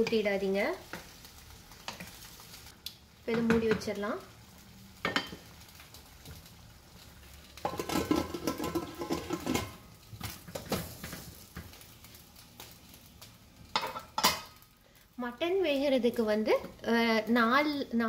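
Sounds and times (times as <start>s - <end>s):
metal lid scraping and clanking: 7.7s - 9.8s.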